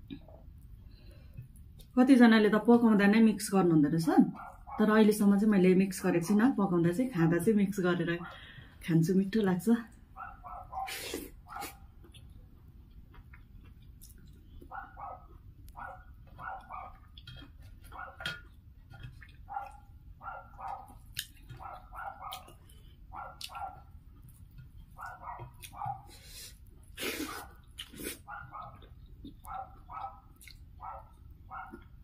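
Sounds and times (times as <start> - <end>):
dog barking: 4.4 - 4.9, 10.2 - 11.9, 14.7 - 17.1, 17.9 - 18.4, 19.4 - 23.9, 25.0 - 26.2, 28.2 - 28.9, 29.5 - 32.0
close-up eating sounds: 9.9 - 32.0.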